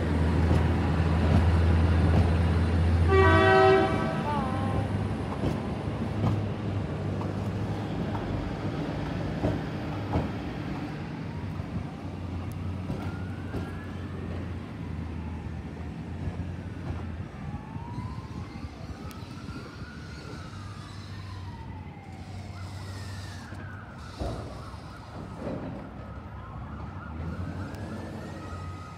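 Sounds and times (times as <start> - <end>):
emergency siren wailing: 0.0 - 6.0, 9.9 - 28.9
freight train rumbling: 0.0 - 17.9.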